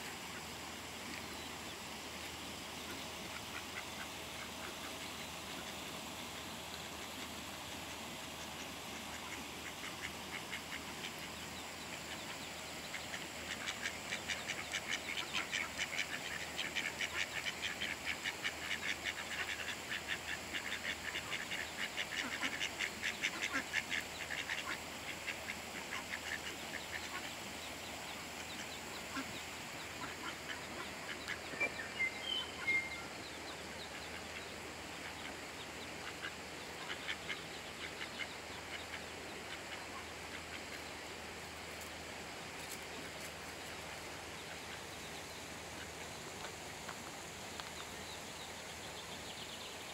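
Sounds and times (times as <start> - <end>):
ducks calling: 8.4 - 27.3.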